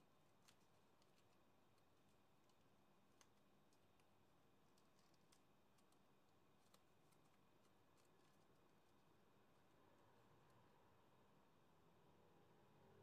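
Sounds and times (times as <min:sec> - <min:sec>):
folded paper clicks: 0:00.0 - 0:09.0.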